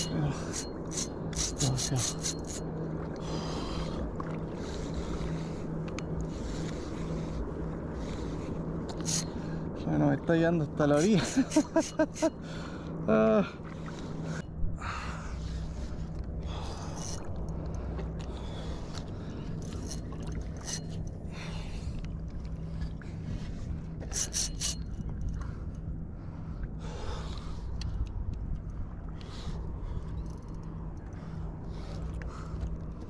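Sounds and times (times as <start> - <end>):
handling scrapes: 0.0 - 2.6, 8.9 - 9.4, 24.0 - 24.9.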